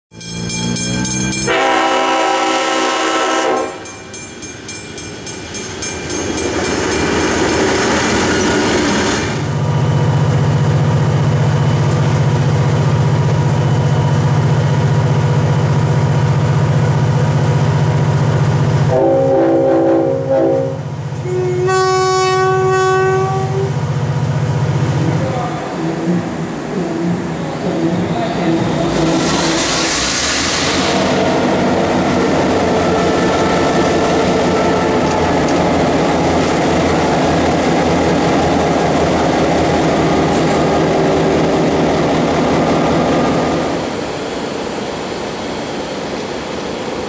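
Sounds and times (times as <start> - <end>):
train engine drone: 0.1 - 47.0
locomotive horn: 1.4 - 3.8, 18.9 - 23.8.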